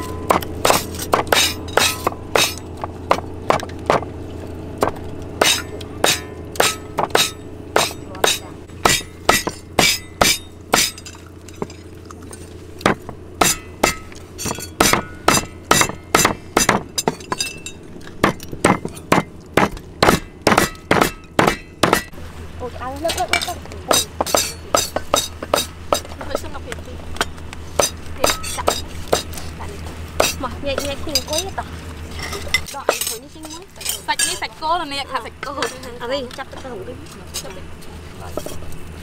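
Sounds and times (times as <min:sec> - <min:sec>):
steady low hum: 0:00.0 - 0:39.0
cleaver chopping on cutting board: 0:00.3 - 0:04.1, 0:04.8 - 0:10.9, 0:12.8 - 0:16.9, 0:18.2 - 0:22.1.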